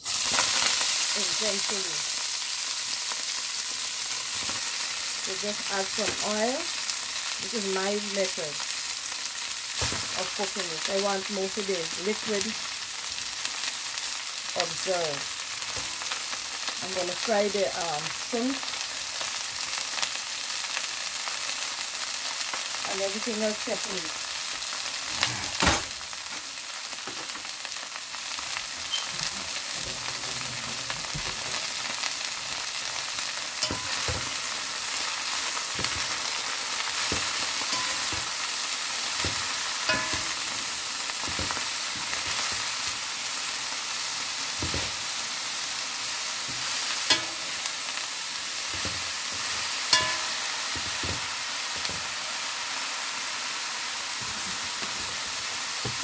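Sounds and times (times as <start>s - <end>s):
greens sizzling in hot oil: 0.0s - 56.0s.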